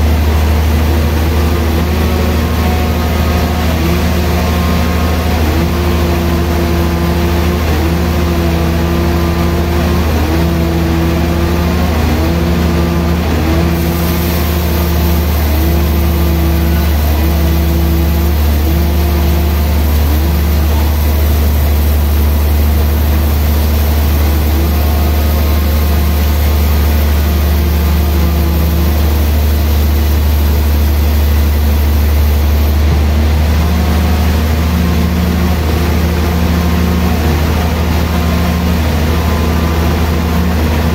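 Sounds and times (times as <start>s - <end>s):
band saw motor hum: 0.0s - 40.9s
saw pitched tone: 13.5s - 33.0s.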